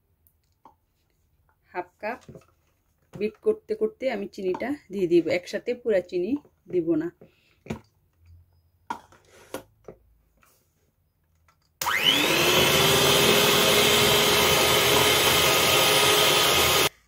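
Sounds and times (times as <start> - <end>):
beaters whipping egg whites: 11.8 - 16.9
electric hand mixer whirring: 11.8 - 17.0.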